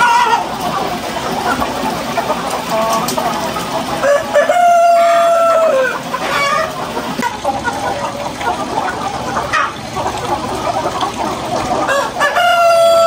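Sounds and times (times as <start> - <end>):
hens clucking: 0.0 - 13.0
rooster crowing: 4.0 - 6.0, 11.9 - 13.0.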